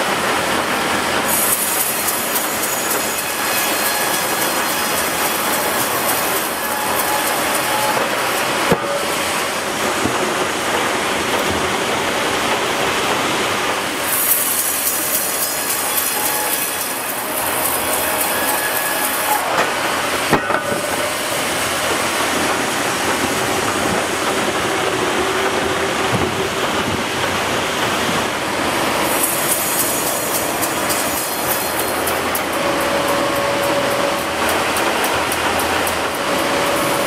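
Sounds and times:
band saw cutting log: 1.3s - 9.8s, 14.0s - 27.0s, 28.9s - 37.0s.

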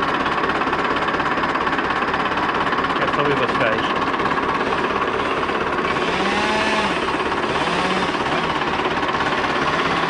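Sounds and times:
tractor diesel engine idling: 0.0s - 10.0s.

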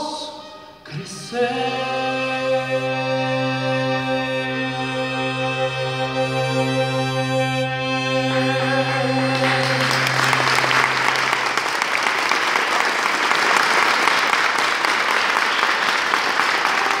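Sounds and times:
music final chord: 6.3s - 12.2s
audience applauding: 8.7s - 17.0s.

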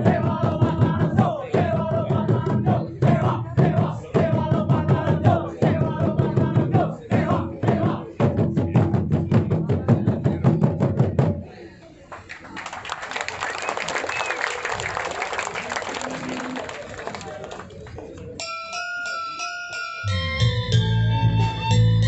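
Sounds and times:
drum ensemble beating fast rhythms: 0.0s - 11.5s
held melody: 18.4s - 22.0s.

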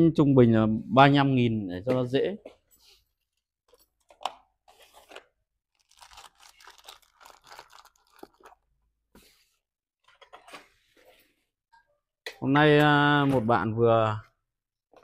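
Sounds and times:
small objects crinkling and clicking: 5.0s - 8.7s.

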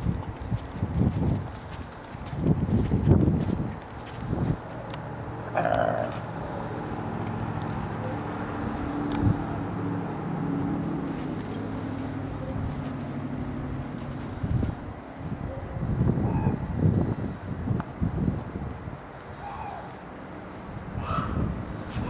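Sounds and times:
wolf growling low: 5.4s - 6.4s
wolf high-pitched call: 5.5s - 6.2s.

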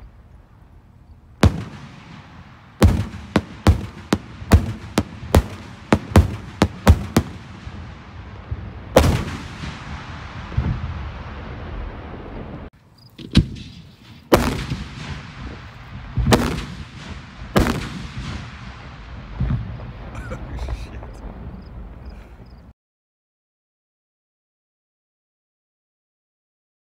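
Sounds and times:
fireworks shells bursting: 1.4s - 10.7s, 13.0s - 21.2s
salute booms with echoing rumble: 1.4s - 22.7s.

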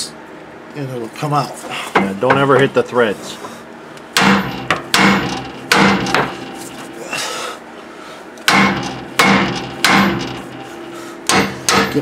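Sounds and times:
sledgehammer striking steel: 4.2s - 6.8s, 8.5s - 12.0s.

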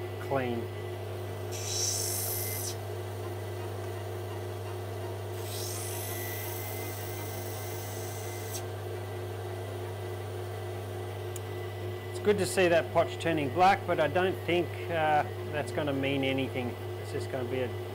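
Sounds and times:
machine motor hum: 1.4s - 14.9s.

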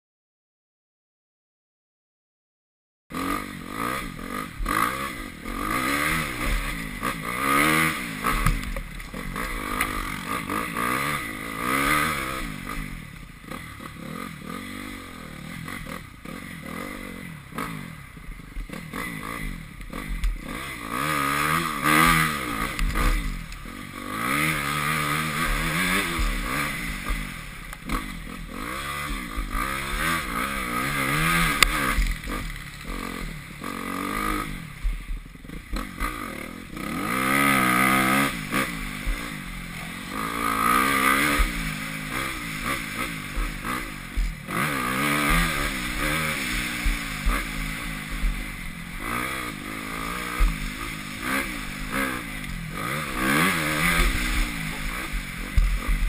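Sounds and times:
motocross bike engine revving: 3.1s - 56.0s.

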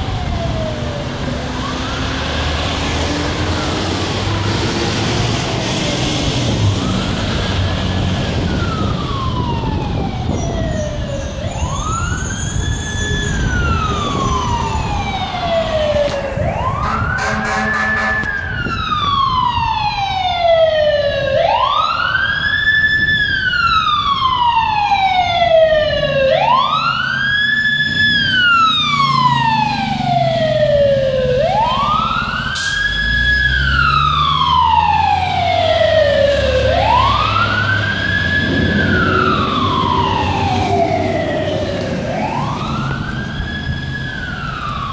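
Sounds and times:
fire engine siren wailing: 0.0s - 44.9s
traffic rumble: 0.0s - 44.9s
vehicle horn: 16.8s - 18.4s.

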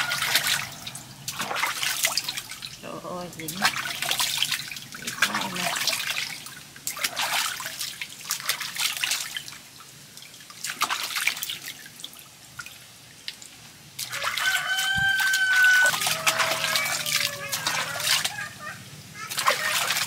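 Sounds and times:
rooster crowing: 0.0s - 1.2s, 14.1s - 18.8s
water splashing and trickling: 0.0s - 20.0s.

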